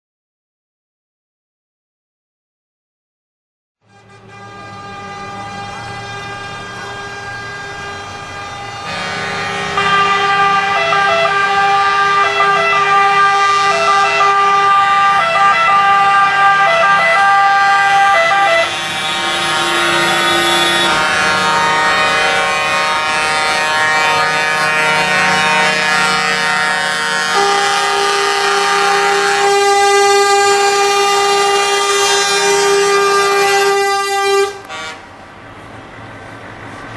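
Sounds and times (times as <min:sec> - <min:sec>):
two-note horn: 0:03.8 - 0:14.4, 0:18.2 - 0:35.0
truck air horns chords: 0:03.8 - 0:35.3.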